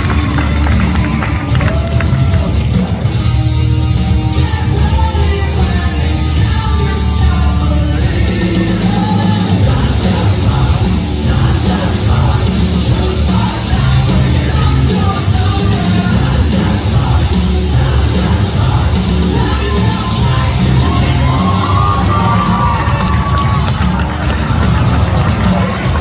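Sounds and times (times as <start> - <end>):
loud rock music with singing: 0.0 - 26.0.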